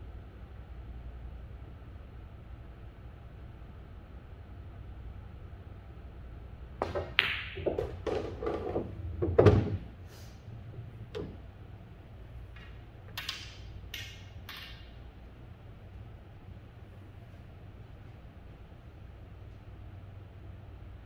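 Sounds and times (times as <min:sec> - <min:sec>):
cue tip clicking on ball: 0:06.8 - 0:09.6, 0:12.5 - 0:15.0
ball dropping into pocket: 0:06.8 - 0:09.9
pool balls knocking: 0:06.8 - 0:10.0, 0:10.6 - 0:11.5
ball scraping on table: 0:06.8 - 0:11.4.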